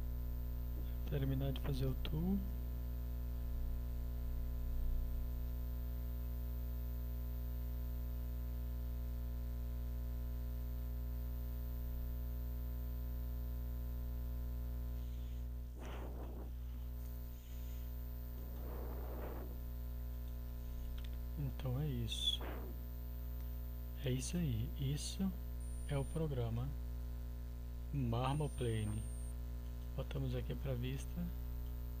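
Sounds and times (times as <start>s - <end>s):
electrical mains hum: 0.0s - 32.0s
short faint noises: 15.0s - 23.0s.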